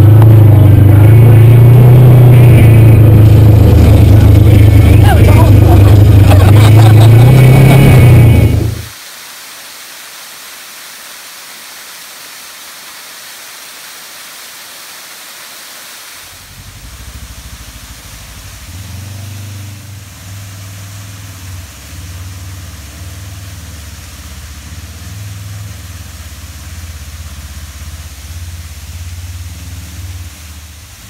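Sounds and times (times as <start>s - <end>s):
vehicle engine running at low speed: 0.0s - 9.0s, 16.3s - 31.0s
waterfall hiss: 0.0s - 31.0s.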